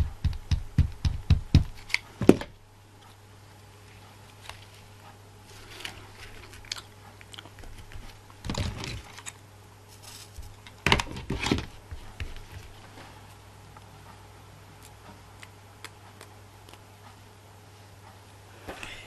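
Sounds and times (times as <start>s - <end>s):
ribbons and metal tools rustling: 9.9s - 11.7s.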